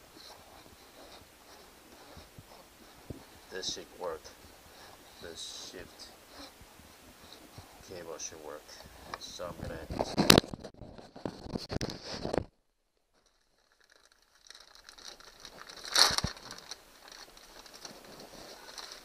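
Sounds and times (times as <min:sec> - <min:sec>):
plastic packaging crinkling and tearing: 0:09.9 - 0:12.4, 0:13.2 - 0:19.0.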